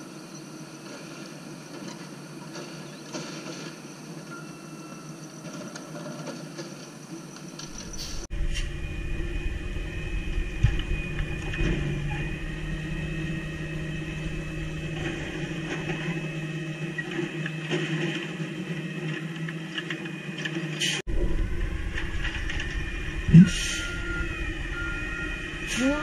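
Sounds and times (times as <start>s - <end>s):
garbage truck engine: 0.8s - 26.0s
high whine: 7.6s - 26.0s.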